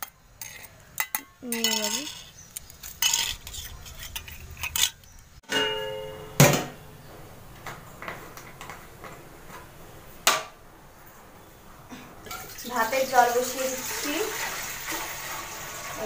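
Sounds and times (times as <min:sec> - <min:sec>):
steel dishes clinking: 0:00.0 - 0:06.4
metal pot ringing: 0:05.4 - 0:06.8.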